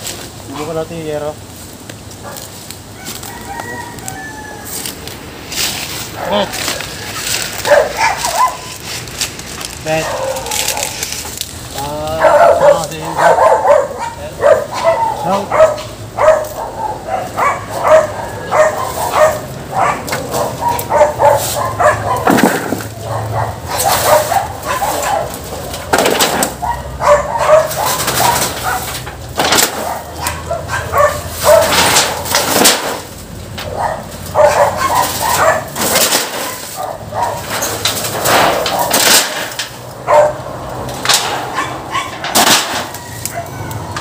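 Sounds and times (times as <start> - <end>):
dogs barking: 2.2 - 2.6, 6.0 - 8.9, 9.8 - 44.0
loud clattering: 22.2 - 23.0, 25.5 - 26.6, 31.4 - 33.1, 34.9 - 36.7, 37.4 - 39.8, 40.9 - 43.0.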